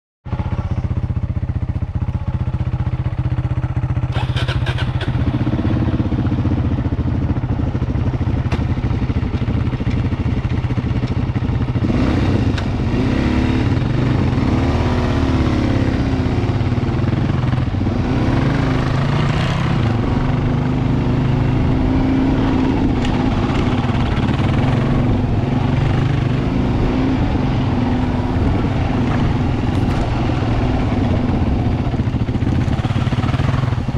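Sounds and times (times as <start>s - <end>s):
engine clatter: 0.3s - 14.7s, 15.4s - 33.9s
motorcycle engine revving: 0.3s - 33.9s.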